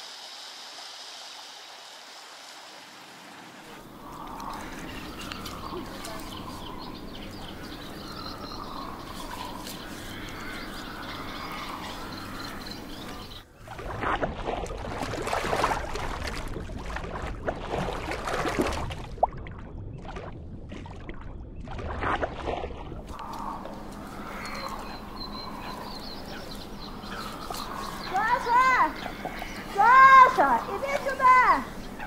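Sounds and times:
birds calling: 3.6s - 13.6s, 23.1s - 32.0s
water splashing and bubbling: 12.8s - 31.8s.

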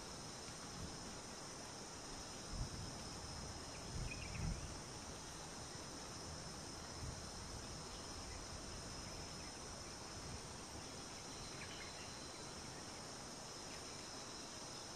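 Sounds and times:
high-pitched insect chorus: 0.0s - 14.9s.

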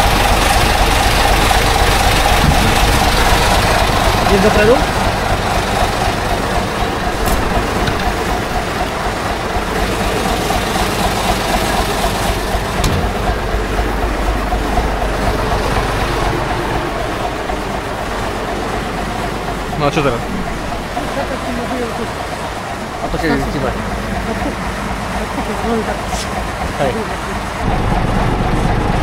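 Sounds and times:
diesel engine running: 0.0s - 29.0s.

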